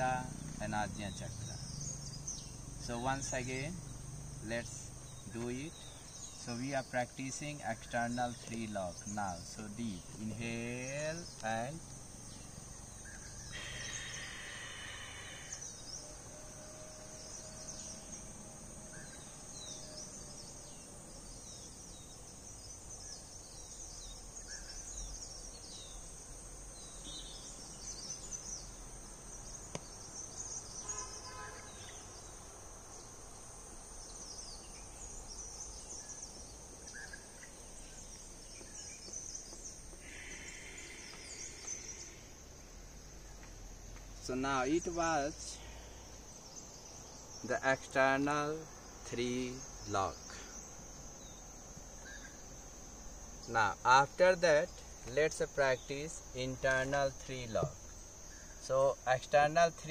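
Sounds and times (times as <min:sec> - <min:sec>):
high-pitched insect chorus: 0:00.0 - 0:59.9
short bird calls: 0:13.0 - 0:16.2, 0:30.7 - 0:32.2, 0:40.0 - 0:42.3.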